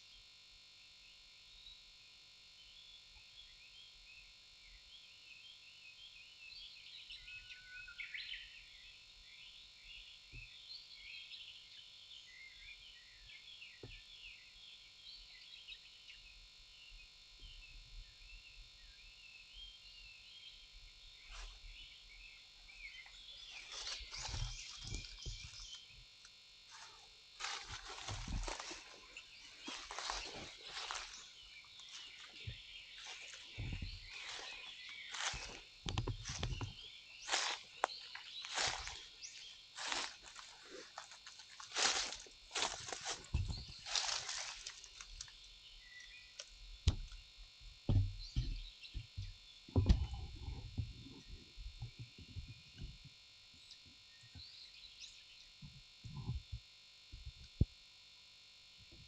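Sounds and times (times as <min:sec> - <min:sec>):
footsteps crunching dry leaves: 0:22.8 - 0:25.9, 0:26.7 - 0:45.4
brushing rustle: 0:26.7 - 0:35.6, 0:36.2 - 0:45.2.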